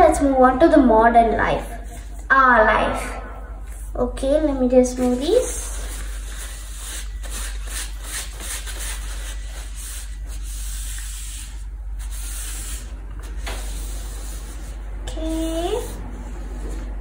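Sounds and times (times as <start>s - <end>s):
tissue rubbing on plastic sheet: 5.0s - 17.0s.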